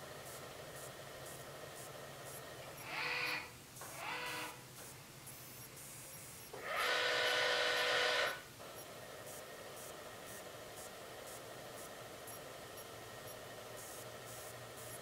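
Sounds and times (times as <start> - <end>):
telescope motors whining: 6.6 - 8.4.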